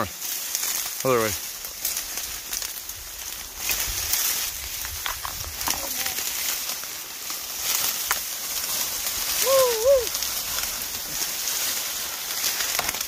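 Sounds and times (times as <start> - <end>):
dry stalks rustling and crackling: 0.0 - 13.0
short wavering call: 9.4 - 10.1.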